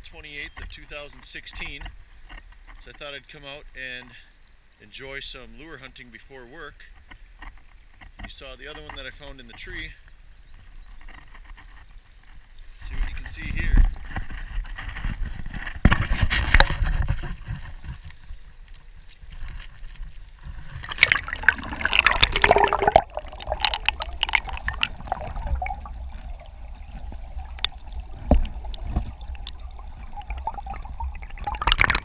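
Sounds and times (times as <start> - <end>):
muffled underwater water sloshing: 16.3 - 32.0
splashing: 19.0 - 32.0.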